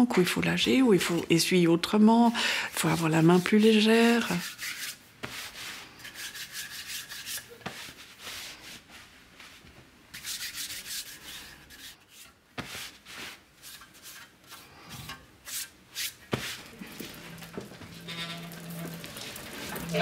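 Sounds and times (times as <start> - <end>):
hand rubbing metal plate: 15.5 - 20.0.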